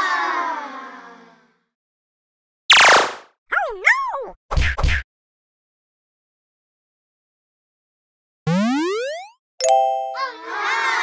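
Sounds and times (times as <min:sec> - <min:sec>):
cartoon falling sweep: 0:02.7 - 0:04.2, 0:08.5 - 0:09.4
boing-like warbling tone: 0:08.5 - 0:09.4.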